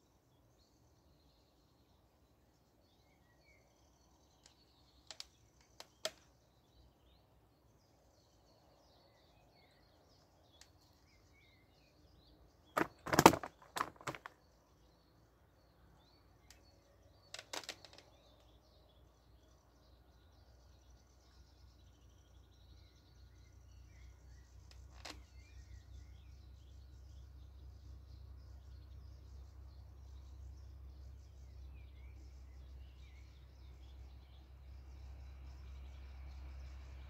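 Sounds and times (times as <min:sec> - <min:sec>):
faint birdsong: 0:00.0 - 0:37.0
wooden chair knocks and rustling: 0:12.8 - 0:14.3.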